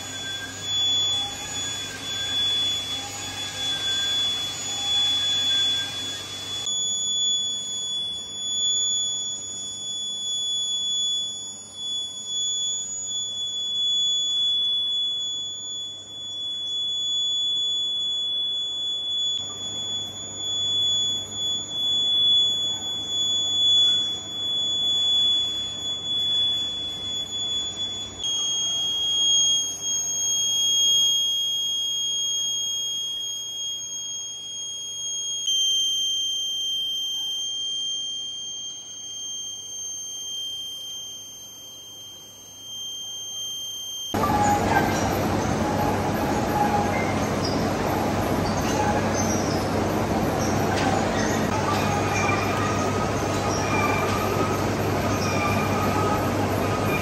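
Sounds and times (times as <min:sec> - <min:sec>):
lathe tool squealing on metal: 0:00.0 - 0:07.8, 0:19.2 - 0:37.5, 0:42.8 - 0:57.0
low machine hum: 0:00.0 - 0:57.0.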